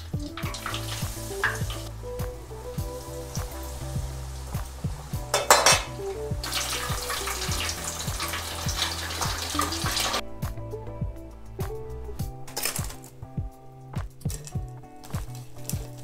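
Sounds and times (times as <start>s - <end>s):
meat deep-frying in oil: 0.0s - 10.2s
background music: 0.0s - 16.0s
metal skimmer clattering on pot: 5.3s - 5.9s.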